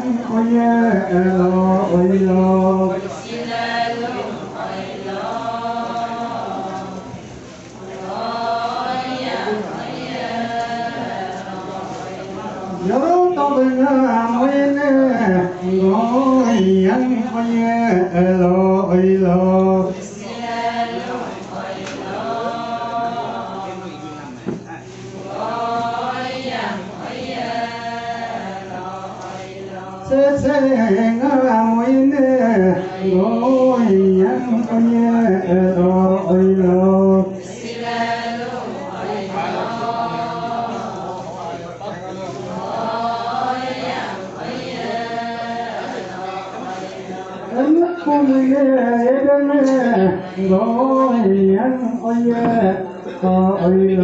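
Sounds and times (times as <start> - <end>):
women chanting in unison: 3.1 - 7.2, 7.9 - 12.8, 20.1 - 23.8, 25.2 - 30.1, 37.4 - 41.2, 42.4 - 47.4.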